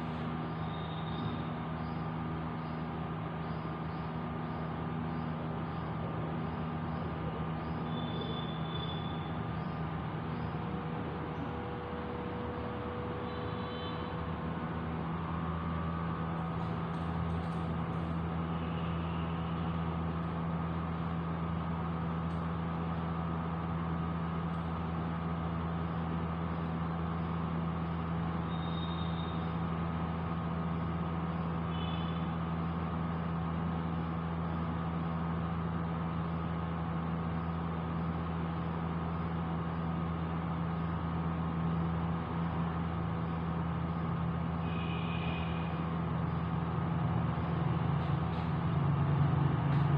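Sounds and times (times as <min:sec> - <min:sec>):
low mechanical hum: 0:00.0 - 0:49.9.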